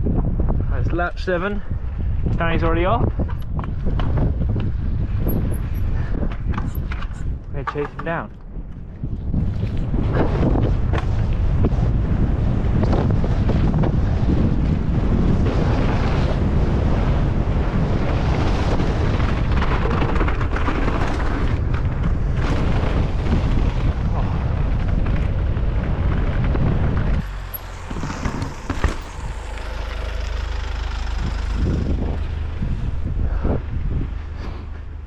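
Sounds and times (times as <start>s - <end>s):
mountain bike rattle and tyre noise: 0.0s - 35.0s
wind buffeting microphone: 0.0s - 35.0s
steady low hum: 24.4s - 35.0s.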